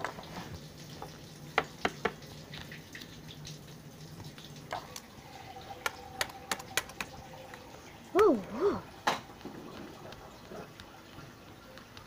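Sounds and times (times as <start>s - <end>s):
faint steady hum: 0.1s - 12.0s
plastic toys clicking on wood: 5.8s - 7.2s.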